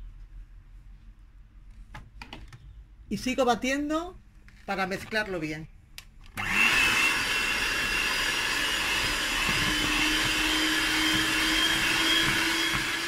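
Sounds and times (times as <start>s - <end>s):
electric hand mixer whining: 6.4s - 13.0s.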